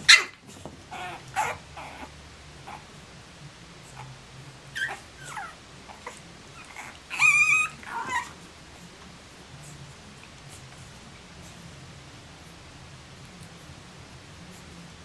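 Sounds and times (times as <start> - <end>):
puppies whimpering: 0.1 - 2.1, 4.7 - 8.4
puppy high wavering cry: 0.1 - 2.1, 4.7 - 8.4.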